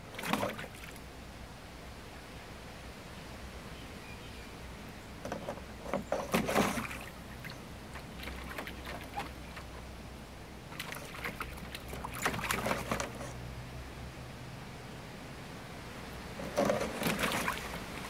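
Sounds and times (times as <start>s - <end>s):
dog splashing in water: 0.2s - 1.0s, 6.3s - 9.8s, 10.7s - 13.3s, 16.4s - 18.0s.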